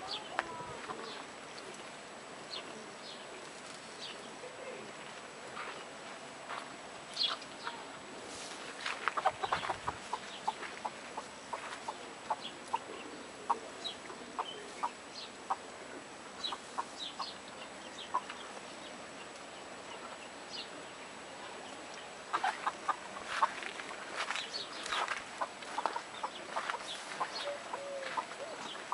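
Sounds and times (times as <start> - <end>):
chickens clucking: 8.8 - 18.7, 21.4 - 28.9.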